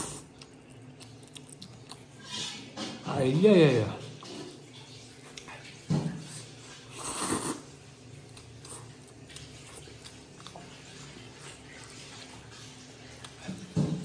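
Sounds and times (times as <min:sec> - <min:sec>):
chewing and mouth sounds: 0:00.0 - 0:02.8, 0:05.1 - 0:14.0
man slurping noodles: 0:06.9 - 0:07.7.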